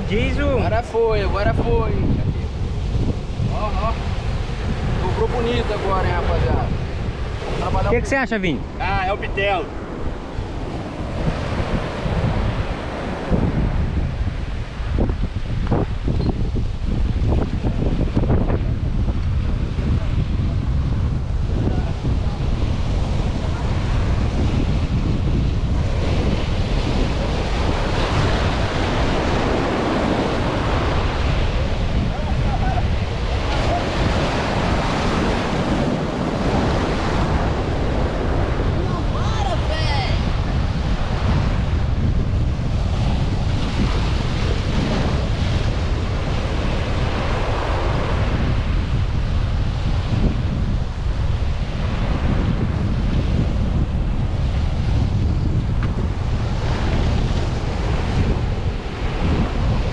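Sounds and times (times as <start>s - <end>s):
surf washing on rocks: 0.0s - 59.9s
wind buffeting microphone: 0.0s - 59.9s
surf breaking on rocks: 21.5s - 42.0s.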